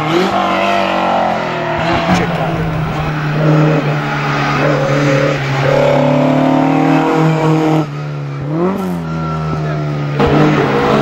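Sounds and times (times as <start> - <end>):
rally car engine accelerating: 0.0 - 11.0
steady low drone: 1.8 - 7.1.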